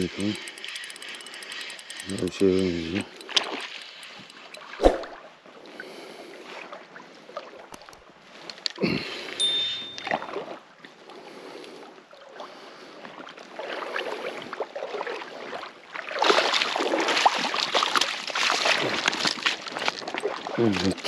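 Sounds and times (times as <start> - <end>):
water splashing around a fish: 13.5 - 20.6.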